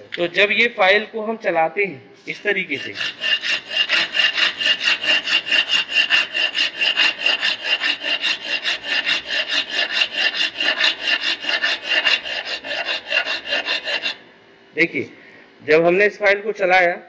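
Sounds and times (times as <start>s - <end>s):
file rasping on metal: 2.3s - 14.2s.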